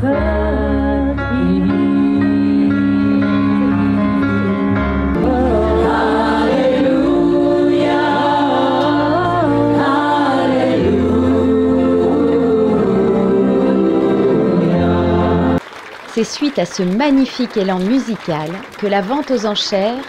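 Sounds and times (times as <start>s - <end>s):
person singing with vibrato: 0.0s - 15.6s.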